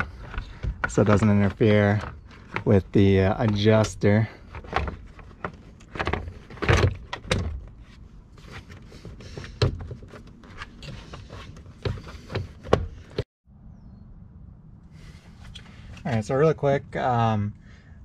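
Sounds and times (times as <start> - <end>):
plastic trim panels clicking and scraping: 0.0 - 7.8, 8.4 - 13.2.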